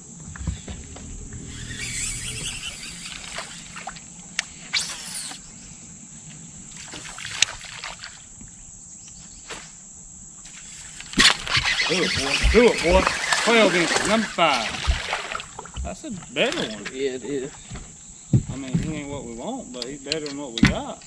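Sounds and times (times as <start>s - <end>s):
high-pitched insect drone: 0.0s - 6.6s
fishing reel whirring: 0.3s - 5.5s, 11.2s - 14.6s.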